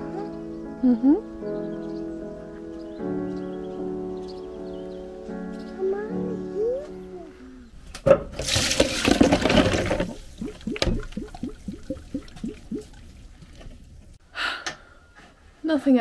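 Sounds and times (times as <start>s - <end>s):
water pouring into a sink: 8.4s - 13.6s
water dripping: 8.4s - 14.2s.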